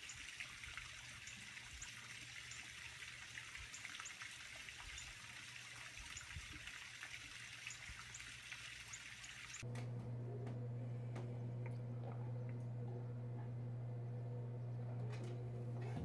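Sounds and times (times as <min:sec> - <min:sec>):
trickling water-like hiss: 0:00.0 - 0:09.6
low steady hum: 0:09.5 - 0:16.0.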